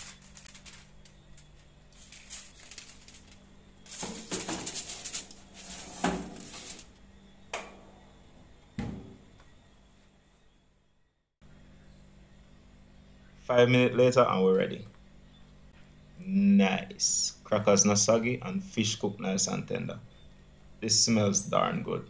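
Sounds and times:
aluminium foil crinkling: 0.0s - 6.9s.

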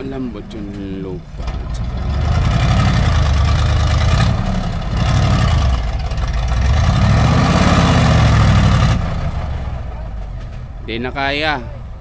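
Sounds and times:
diesel truck engine revving hard: 1.4s - 9.8s.

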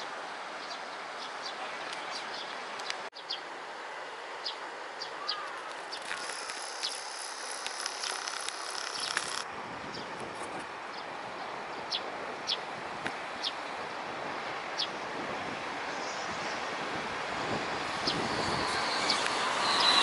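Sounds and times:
birds chirping: 0.6s - 3.5s, 4.4s - 10.1s
steady hiss: 5.6s - 9.4s
insects buzzing: 5.8s - 9.4s
high steady insect buzz: 6.1s - 9.4s.

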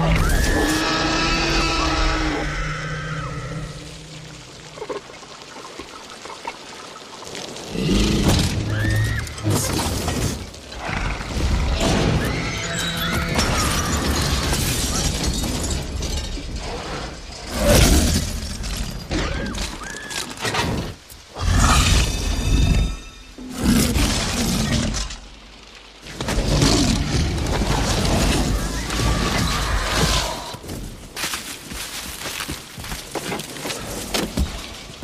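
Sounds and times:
high screams: 0.0s - 3.8s
rain: 0.0s - 35.0s
glass shattering: 12.6s - 16.6s.

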